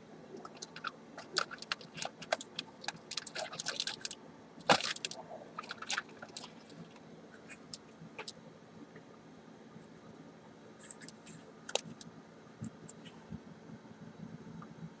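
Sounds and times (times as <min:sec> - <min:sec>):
card packs crinkling: 0:00.4 - 0:08.3.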